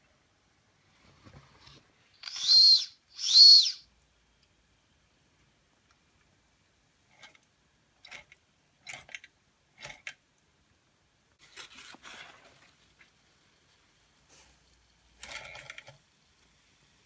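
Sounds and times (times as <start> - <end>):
steam hissing: 2.2 - 3.8
toy steam engine puffing: 2.2 - 3.8.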